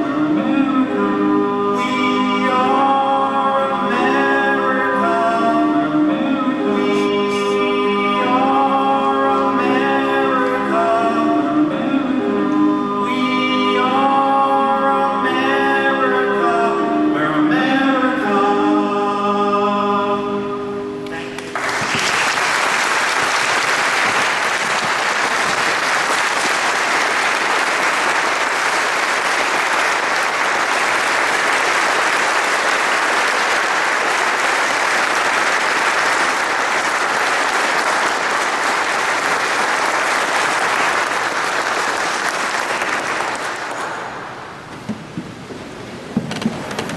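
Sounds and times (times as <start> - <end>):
audience applauding: 21.3 - 44.6.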